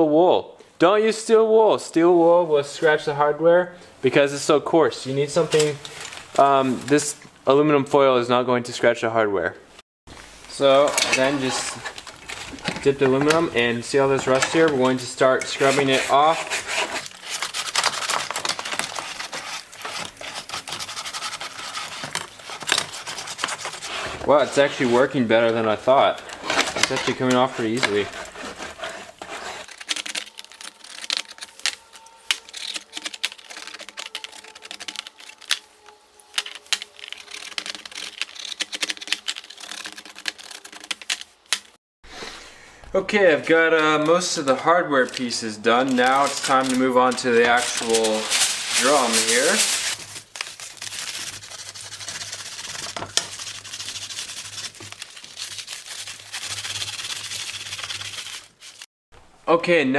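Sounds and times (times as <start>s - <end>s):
aluminum foil scraping metal: 10.5s - 41.7s, 43.7s - 58.9s.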